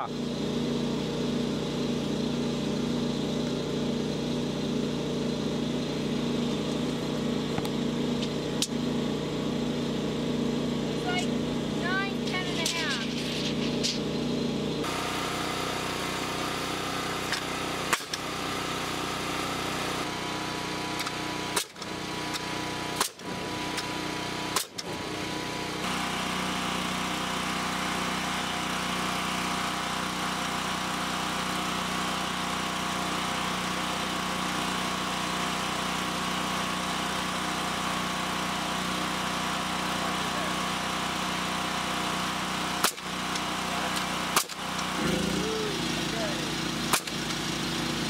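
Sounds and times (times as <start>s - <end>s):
engine running steadily: 0.0s - 48.0s
sharp click: 17.3s - 18.2s, 42.8s - 44.9s, 46.9s - 47.2s.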